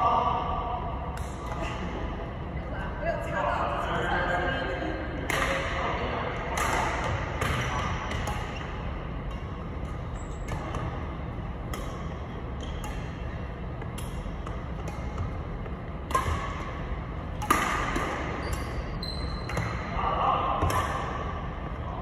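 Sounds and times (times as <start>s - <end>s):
low background hum: 0.0s - 22.0s
rackets hitting shuttlecock: 1.1s - 1.9s, 5.2s - 5.8s, 6.4s - 21.8s.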